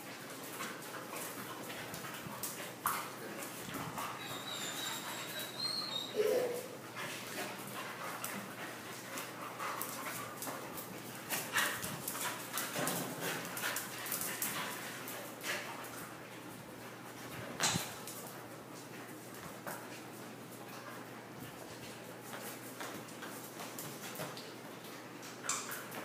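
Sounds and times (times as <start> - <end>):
dogs scuffling: 0.0 - 26.0
dogs whining: 4.0 - 6.8.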